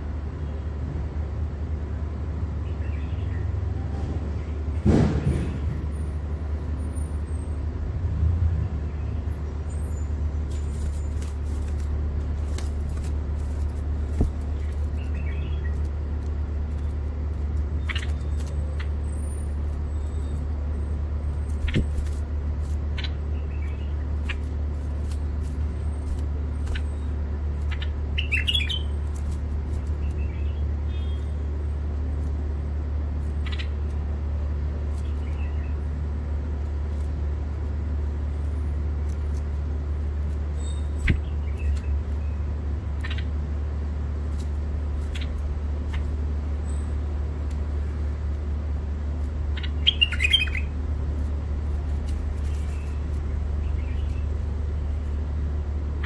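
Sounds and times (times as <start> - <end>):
steady low hum: 0.0 - 56.0
bird chirps: 14.4 - 15.8, 17.8 - 19.3, 26.6 - 29.0, 30.0 - 31.4, 49.5 - 50.8, 53.6 - 54.4.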